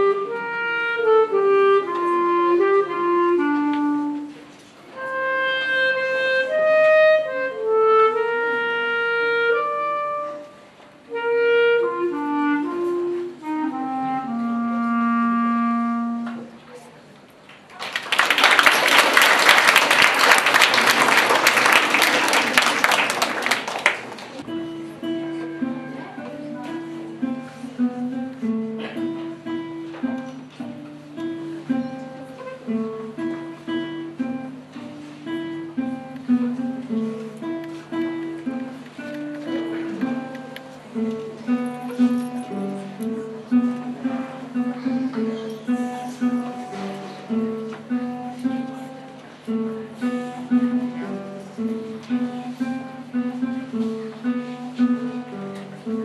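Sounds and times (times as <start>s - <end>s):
classical guitar solo: 0.0s - 17.2s, 19.4s - 56.0s
audience clapping: 17.5s - 24.4s.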